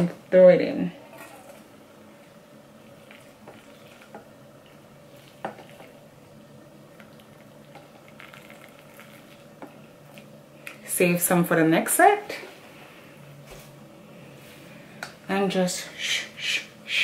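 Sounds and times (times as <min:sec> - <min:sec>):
water pouring into metal bowl: 0:08.1 - 0:09.5.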